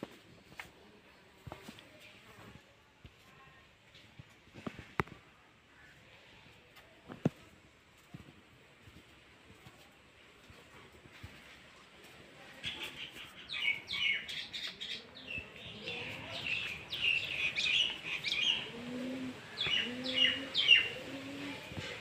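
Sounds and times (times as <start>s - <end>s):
small birds chirping: 12.5s - 22.0s.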